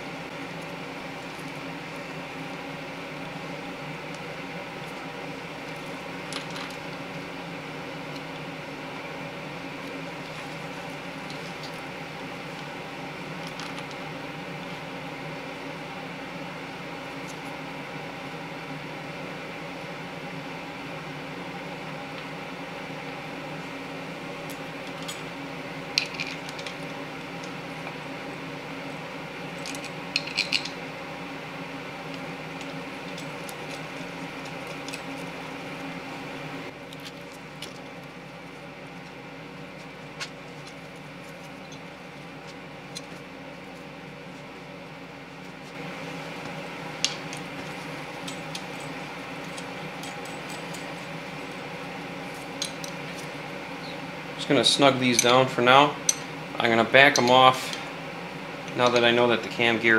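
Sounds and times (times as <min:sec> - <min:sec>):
background hum: 0:00.0 - 0:59.9.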